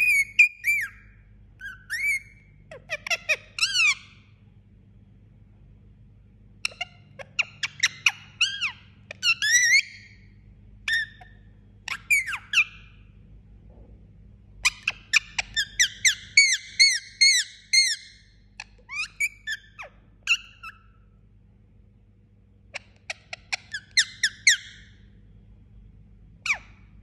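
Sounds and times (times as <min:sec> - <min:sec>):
parakeet squeaky chirps: 0:00.0 - 0:04.2, 0:06.6 - 0:13.0, 0:14.6 - 0:21.1, 0:22.7 - 0:25.0, 0:26.4 - 0:27.0.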